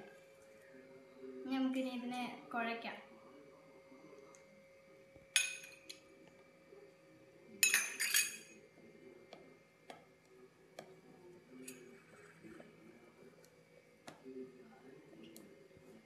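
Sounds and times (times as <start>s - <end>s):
spoon clinking against pot: 5.4s - 6.0s, 7.6s - 8.5s.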